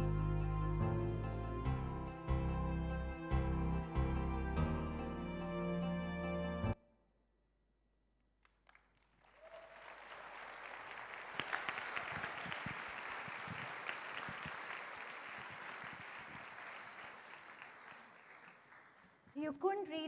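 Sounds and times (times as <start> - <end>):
audience applauding: 8.5 - 19.3.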